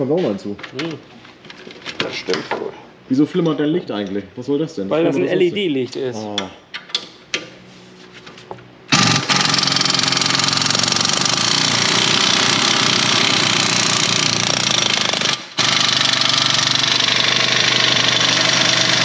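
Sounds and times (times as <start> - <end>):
pneumatic air ratchet running: 8.9 - 19.0.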